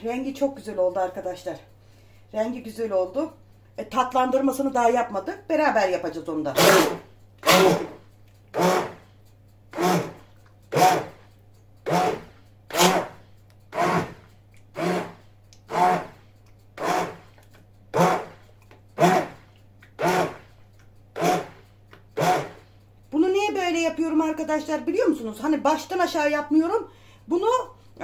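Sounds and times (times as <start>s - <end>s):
hand blender pulsing: 6.6s - 9.1s, 9.7s - 11.2s, 11.8s - 16.2s, 16.8s - 18.4s, 19.0s - 20.5s, 21.2s - 21.6s, 22.2s - 22.6s.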